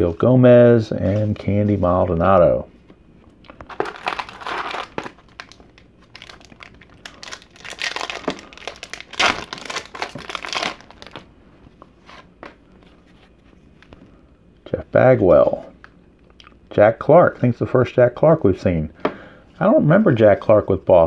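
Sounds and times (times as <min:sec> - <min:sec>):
foil wrapper tearing and crinkling: 0:03.7 - 0:11.2.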